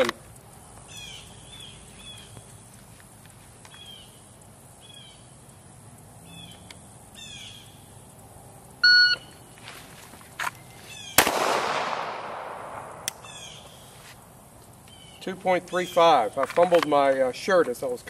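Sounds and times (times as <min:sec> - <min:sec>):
birds chirping: 0:00.0 - 0:08.2, 0:10.3 - 0:11.4, 0:12.6 - 0:18.0
pistol shot with echo: 0:11.2 - 0:13.3
sharp click: 0:12.8 - 0:13.4.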